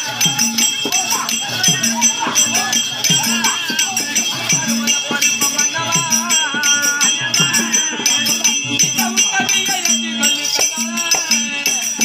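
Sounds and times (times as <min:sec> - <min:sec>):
ankle bells jingling: 0:00.0 - 0:12.0
live folk music with steady beat: 0:00.0 - 0:12.0.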